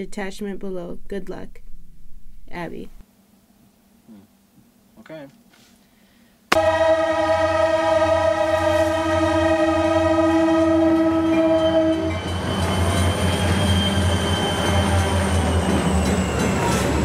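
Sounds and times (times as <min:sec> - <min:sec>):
locomotive air horn: 0:06.5 - 0:15.4
train engine rumble: 0:06.5 - 0:17.0
train wheel noise: 0:11.2 - 0:17.0.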